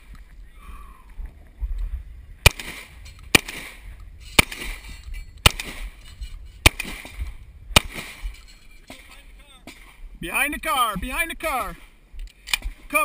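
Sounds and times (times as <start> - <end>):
shotgun shots with echo: 2.4 - 6.0, 6.6 - 8.3.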